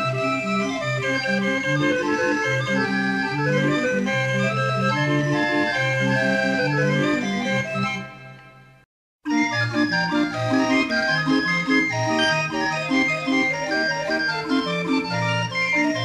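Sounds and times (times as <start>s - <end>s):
barrel organ playing a tune: 0.0s - 8.5s, 9.3s - 16.0s.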